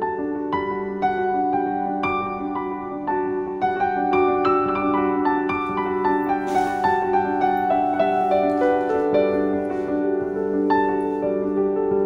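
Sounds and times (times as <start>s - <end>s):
gentle piano music: 0.0s - 12.0s.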